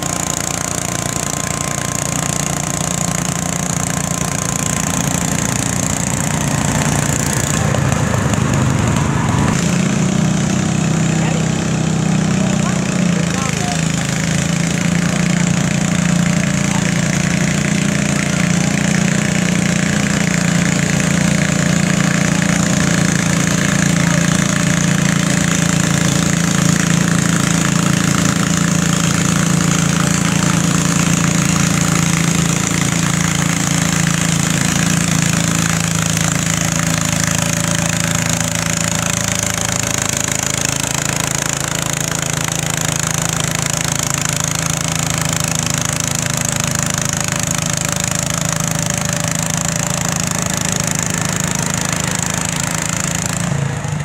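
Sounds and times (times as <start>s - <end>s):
garden tractor engine under load: 0.0s - 54.0s.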